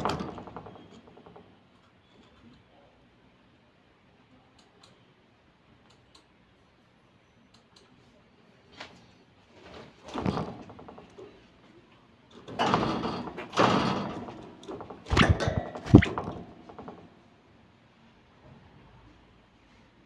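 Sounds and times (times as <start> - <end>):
knocks and rattles of cage: 0.0 - 1.6, 9.6 - 11.5, 12.3 - 17.3.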